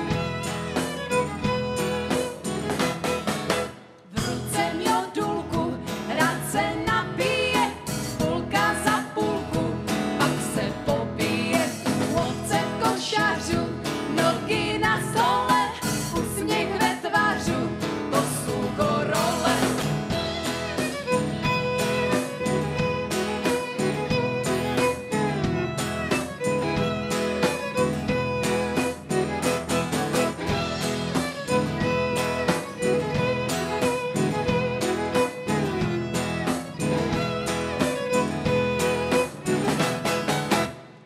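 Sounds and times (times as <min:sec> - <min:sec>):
fiddles playing: 0:00.0 - 0:03.8, 0:19.5 - 0:40.8
women singing: 0:04.1 - 0:20.3.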